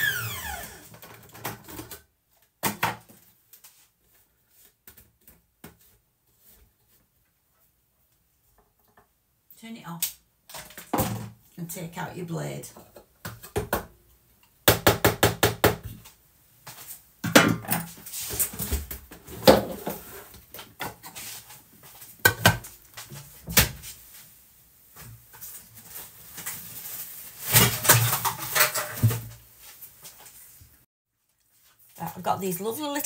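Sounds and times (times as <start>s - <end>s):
kitchenware clattering and scraping: 19.3s - 21.3s, 27.4s - 29.3s.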